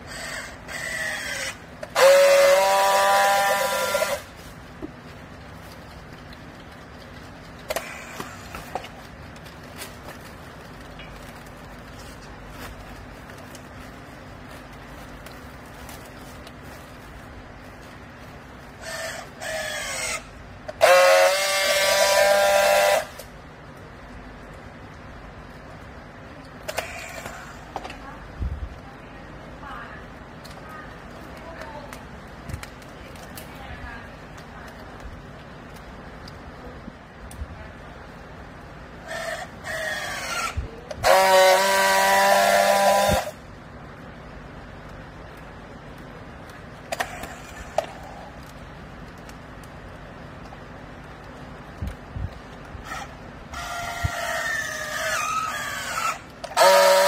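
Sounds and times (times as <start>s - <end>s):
loud steady welding buzz: 0.0s - 57.0s
strapping tool motor whine: 0.1s - 4.3s, 39.1s - 43.4s, 52.8s - 57.0s.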